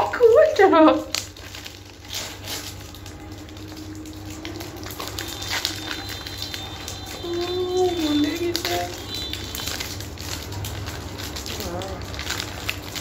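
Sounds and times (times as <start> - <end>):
plastic wrappers crinkling and tearing: 0.0 - 13.0.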